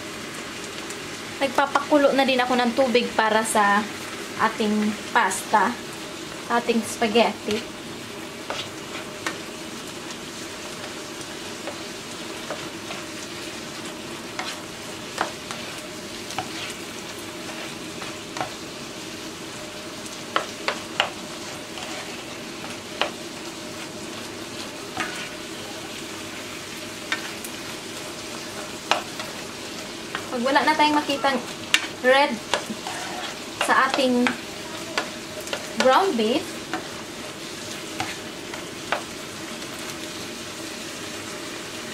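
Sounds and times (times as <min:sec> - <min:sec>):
meat sizzling in a frying pan: 0:00.0 - 0:41.9
plastic spatula scraping pan: 0:16.3 - 0:16.8, 0:32.5 - 0:35.8.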